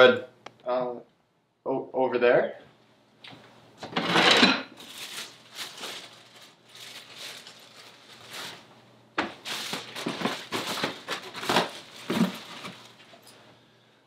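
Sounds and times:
plastic bag crinkling: 4.7s - 13.4s.

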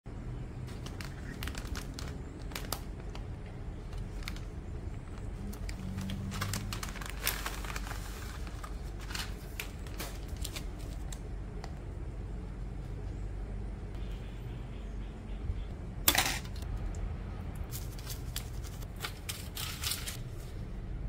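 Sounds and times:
steady low hum: 0.1s - 21.0s
plastic packaging crinkling: 0.7s - 11.3s, 17.7s - 20.2s.

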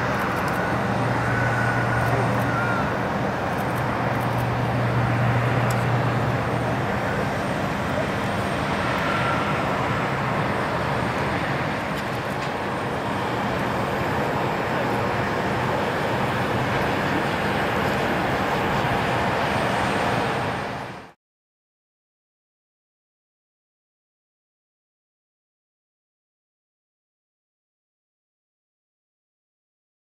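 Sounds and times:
loud rushing jet engine noise: 0.0s - 21.2s.

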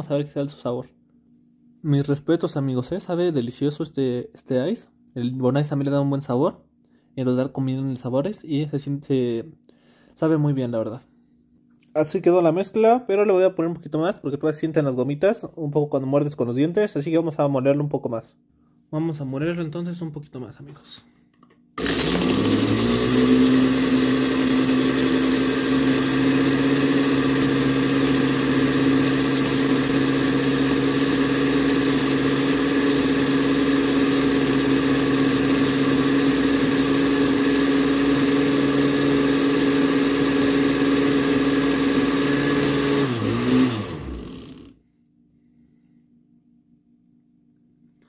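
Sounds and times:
blender grinding ice: 21.8s - 44.8s.

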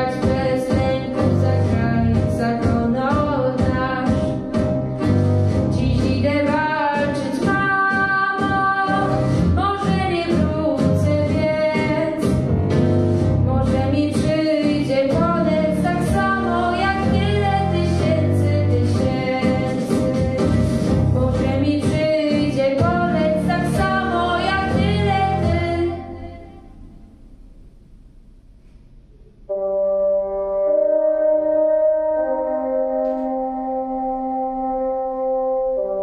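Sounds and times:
girl singing into microphone: 0.0s - 4.5s, 5.7s - 12.4s, 13.4s - 26.6s
instrumental accompaniment with beat: 0.0s - 25.8s, 30.3s - 36.0s.

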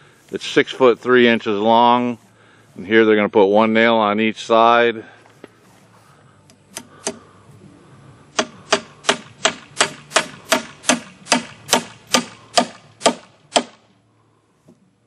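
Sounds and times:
hammer driving nail into wood: 8.4s - 13.8s.

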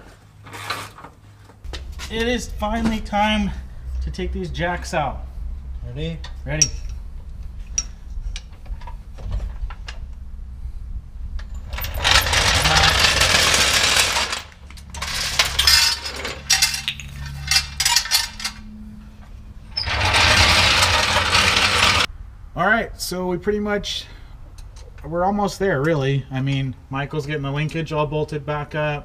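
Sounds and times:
jack rattling: 11.5s - 18.6s, 19.7s - 22.1s.

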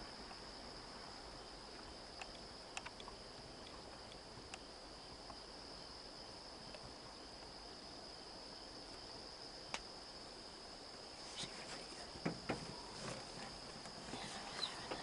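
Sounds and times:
insect chorus drone: 0.0s - 15.0s
soft knocks: 12.2s - 12.8s.

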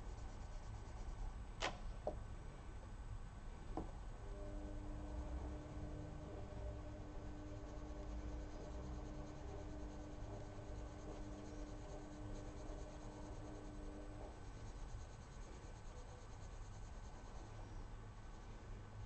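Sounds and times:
pencil scratching on paper: 0.0s - 1.3s, 4.5s - 17.8s
faint steady hum: 0.0s - 19.0s.

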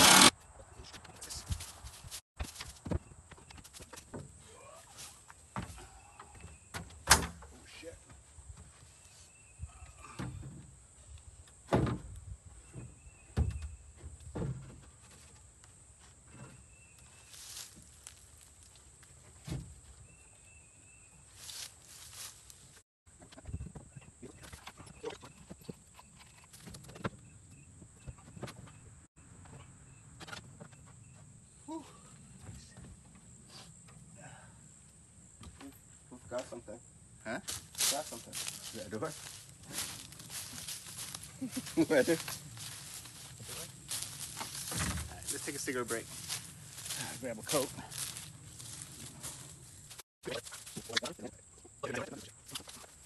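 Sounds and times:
thuds: 44.0s - 45.3s.

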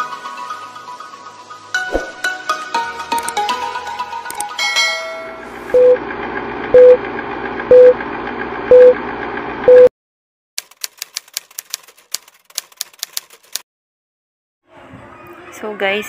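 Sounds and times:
short beeps: 8.7s - 9.0s, 9.7s - 9.9s
rapid sharp clicks: 10.6s - 13.6s.

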